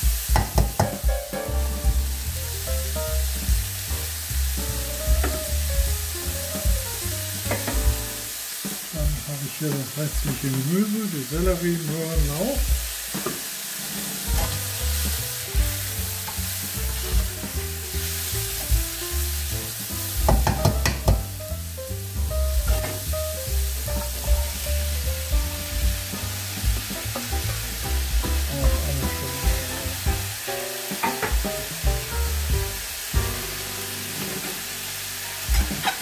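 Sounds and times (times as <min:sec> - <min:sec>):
background music: 0:00.0 - 0:13.0, 0:14.2 - 0:36.0
meat and onions sizzling: 0:00.0 - 0:36.0
metal spatula scraping pot: 0:13.8 - 0:14.6, 0:35.5 - 0:36.0.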